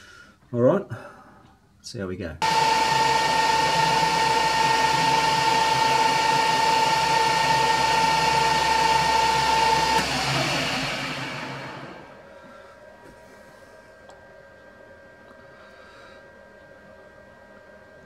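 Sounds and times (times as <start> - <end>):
metal lathe whining: 2.4 - 12.2.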